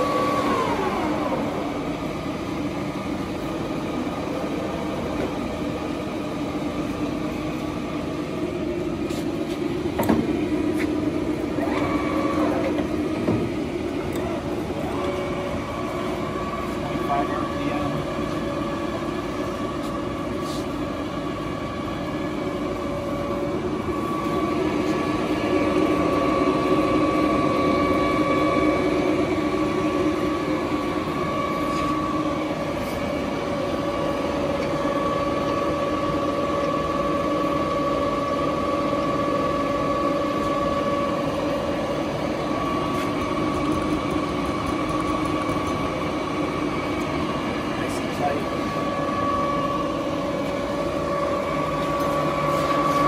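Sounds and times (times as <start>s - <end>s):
lathe hum and gear whine: 0.0s - 53.0s.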